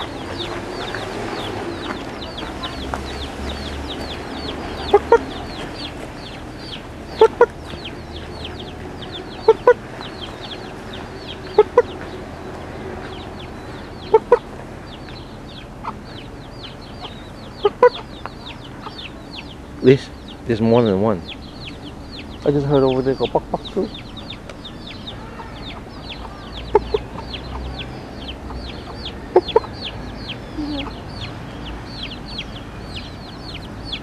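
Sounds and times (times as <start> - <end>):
hen clucking: 0.0 - 34.0
fast high chirps: 13.8 - 34.0.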